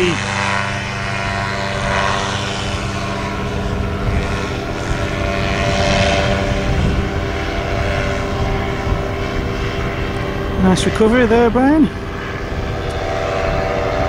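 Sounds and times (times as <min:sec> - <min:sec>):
paramotor engine and propeller: 0:00.0 - 0:14.0
wind buffeting microphone: 0:00.0 - 0:14.0.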